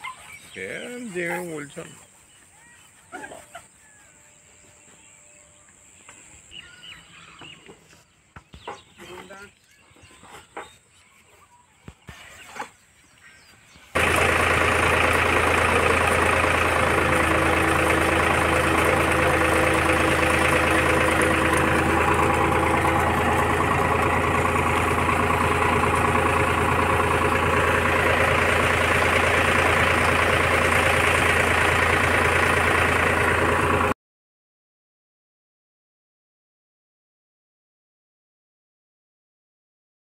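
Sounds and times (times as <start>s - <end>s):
tractor diesel engine running: 0.1s - 2.4s, 13.9s - 34.0s.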